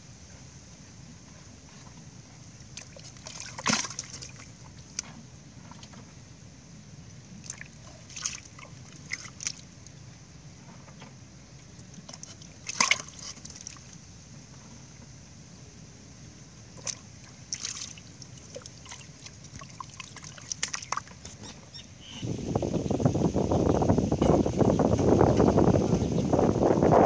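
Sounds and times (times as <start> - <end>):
fish splashing in shallow water: 2.4 - 6.0, 7.3 - 10.0, 11.6 - 14.1, 16.6 - 21.6.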